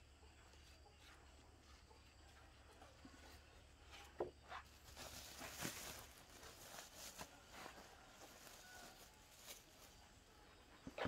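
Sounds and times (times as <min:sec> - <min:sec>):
plastic sack rustling and crinkling: 0:04.5 - 0:10.1.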